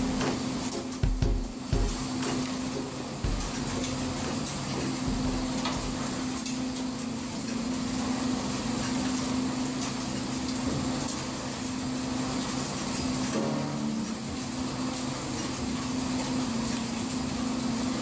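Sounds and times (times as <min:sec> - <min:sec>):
deck machinery hum: 0:00.0 - 0:18.0
low thuds: 0:01.0 - 0:02.1, 0:03.3 - 0:03.7, 0:05.1 - 0:06.0.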